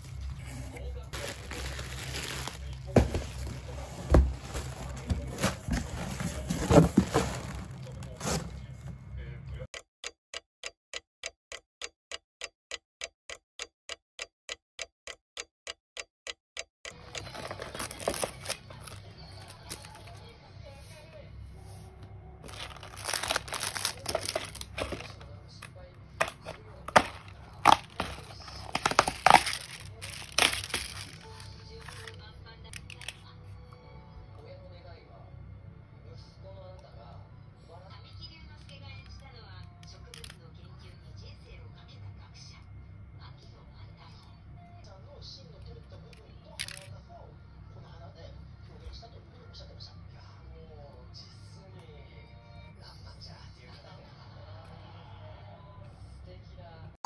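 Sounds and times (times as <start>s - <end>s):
rustling: 0.0s - 8.6s, 22.5s - 25.2s, 26.2s - 32.1s.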